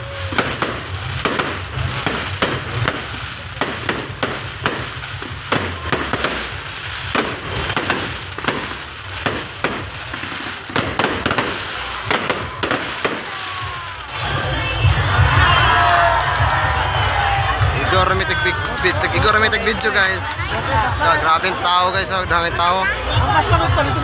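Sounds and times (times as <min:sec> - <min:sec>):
crackling hiss: 0:00.0 - 0:14.3
fireworks cracking and popping: 0:00.0 - 0:24.0.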